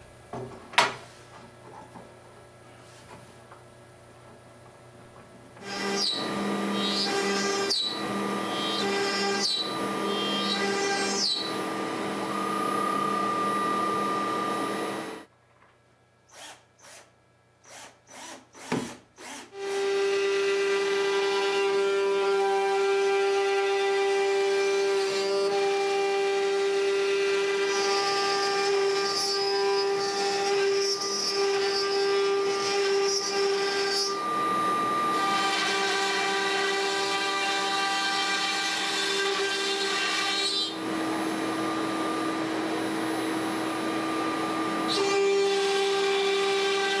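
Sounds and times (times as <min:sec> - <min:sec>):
router spindle cutting wood: 0:05.6 - 0:15.3, 0:19.2 - 0:47.0.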